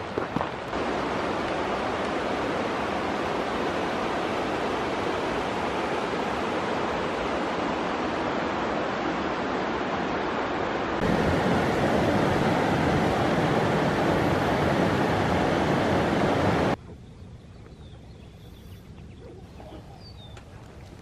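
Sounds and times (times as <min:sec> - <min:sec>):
river water rushing over rocks: 0:00.0 - 0:16.8.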